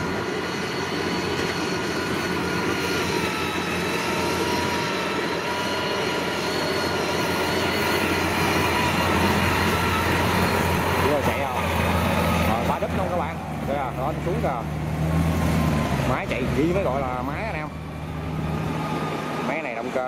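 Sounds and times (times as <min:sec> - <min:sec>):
high drive whine: 0:00.0 - 0:14.8
diesel engine running: 0:00.0 - 0:20.0.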